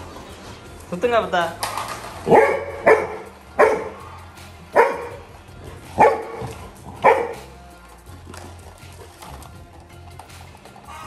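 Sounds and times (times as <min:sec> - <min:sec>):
dog barking: 0:02.2 - 0:04.1, 0:04.7 - 0:05.2, 0:06.0 - 0:07.5.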